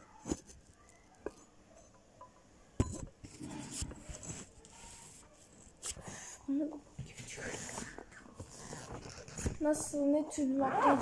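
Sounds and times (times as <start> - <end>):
hard objects knocking: 1.2 - 3.6.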